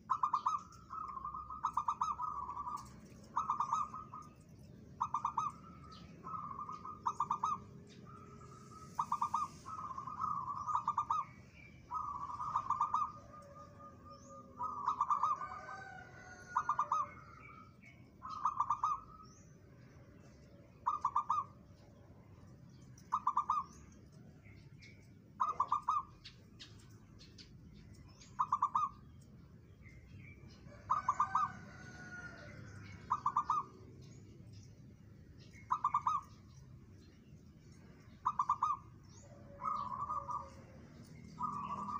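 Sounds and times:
dove cooing: 0:00.0 - 0:19.3, 0:20.8 - 0:21.6, 0:23.1 - 0:23.8, 0:25.4 - 0:26.4, 0:28.2 - 0:29.0, 0:30.7 - 0:34.1, 0:35.6 - 0:36.4, 0:38.2 - 0:41.9.

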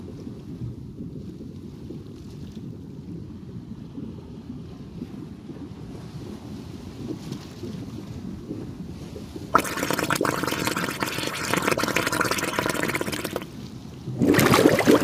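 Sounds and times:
rushing gurgling water: 0:09.5 - 0:15.0
water bubbling: 0:09.5 - 0:15.0.

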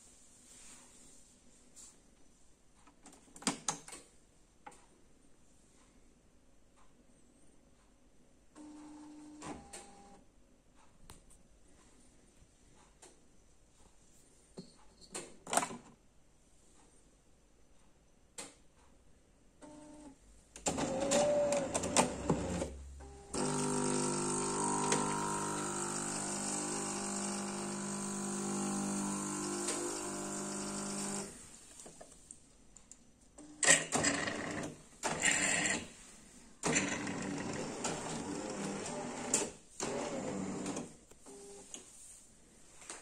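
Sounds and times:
coffee grinder humming: 0:23.3 - 0:31.4
coffee machine pump brewing: 0:23.3 - 0:31.4.

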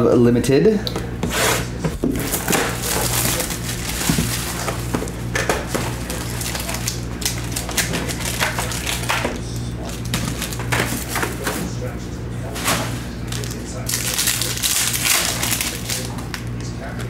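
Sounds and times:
plastic wrap crinkling and tearing: 0:02.1 - 0:11.5, 0:12.5 - 0:16.4.

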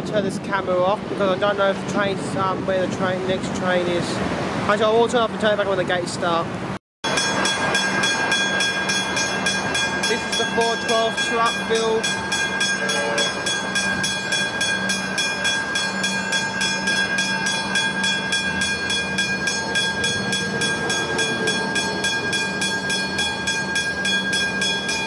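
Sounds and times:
level crossing bell ringing: 0:07.0 - 0:25.0.

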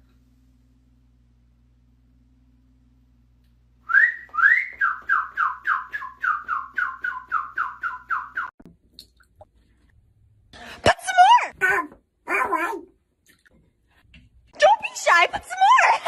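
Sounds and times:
sliding whistle-like tones: 0:03.8 - 0:08.6.

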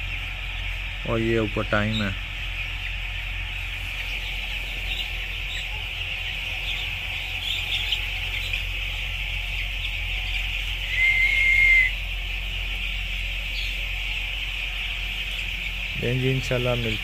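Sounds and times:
chicks peeping: 0:00.0 - 0:17.0
low steady hum: 0:00.0 - 0:17.0
high whistle-like tone: 0:10.8 - 0:12.0.

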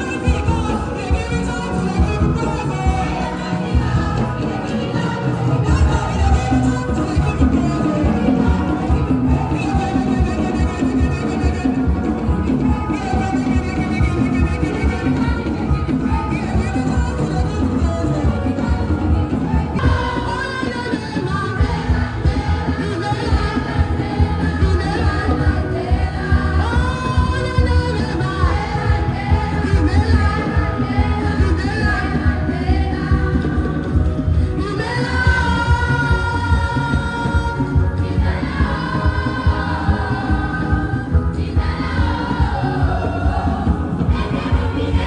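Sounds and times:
band with bass and drums: 0:00.0 - 0:45.0
voices singing praise song: 0:00.0 - 0:45.0.

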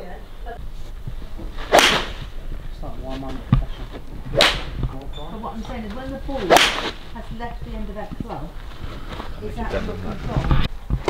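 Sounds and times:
golf club striking ball: 0:01.7 - 0:02.3, 0:04.3 - 0:05.0, 0:05.9 - 0:07.0.

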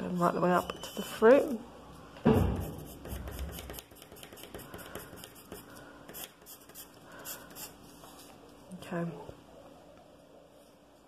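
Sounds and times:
pencil scratching on paper: 0:02.6 - 0:07.8.

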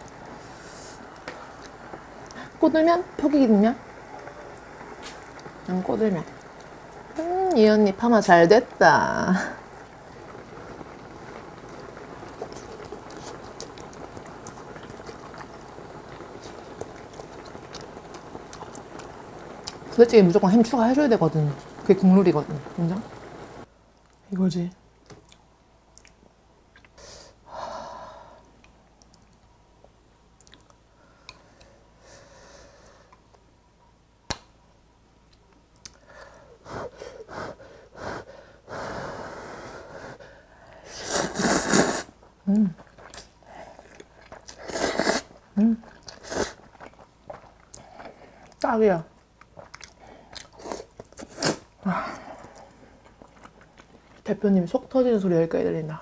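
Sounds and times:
stew bubbling and popping: 0:03.3 - 0:24.2, 0:41.2 - 0:55.0
close chewing: 0:12.2 - 0:19.8, 0:42.7 - 0:44.9, 0:45.6 - 0:48.7, 0:49.3 - 0:54.4
person blowing on food: 0:40.8 - 0:42.2, 0:44.6 - 0:45.3.

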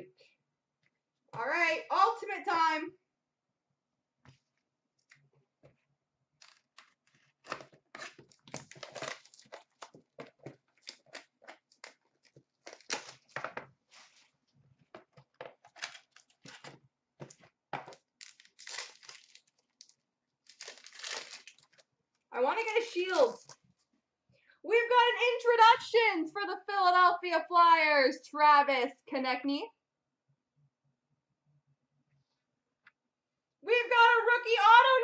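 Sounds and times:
plastic wrapping tearing and crinkling: 0:06.4 - 0:14.3, 0:15.6 - 0:21.9, 0:23.2 - 0:23.6
packaging rustling: 0:06.4 - 0:21.8, 0:23.1 - 0:23.6.

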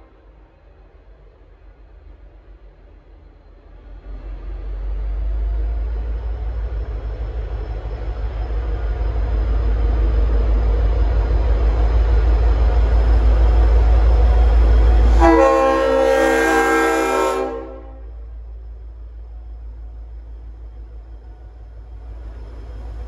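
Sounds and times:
diesel locomotive rumble: 0:00.0 - 0:23.0
train air horn chord: 0:15.1 - 0:18.2.

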